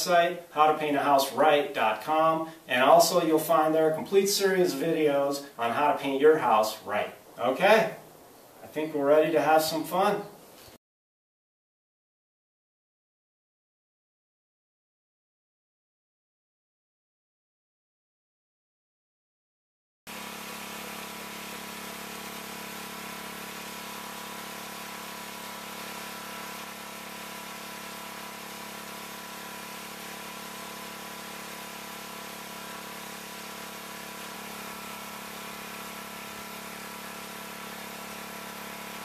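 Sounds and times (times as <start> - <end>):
pressure washer engine idling: 20.1 - 39.0.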